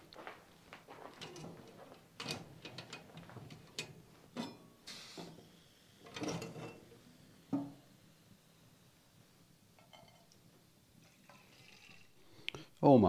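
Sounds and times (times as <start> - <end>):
metal coffee pot and mug clinking: 1.2 - 7.8, 9.8 - 12.1.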